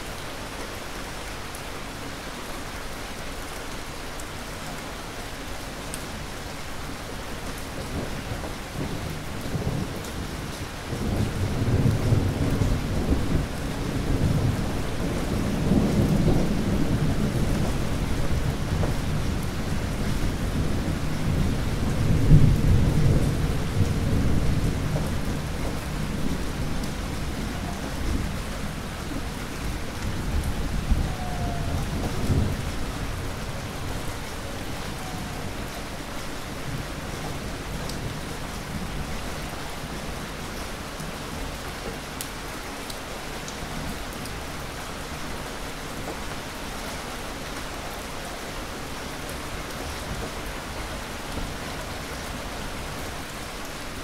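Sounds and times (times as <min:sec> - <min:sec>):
heavy rain: 0:00.0 - 0:54.0
thunder rumbling: 0:07.9 - 0:39.1.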